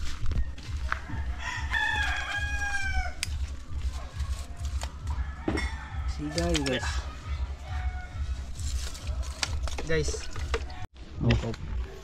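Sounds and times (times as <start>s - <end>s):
rooster crowing: 0.8s - 3.4s, 5.0s - 8.6s.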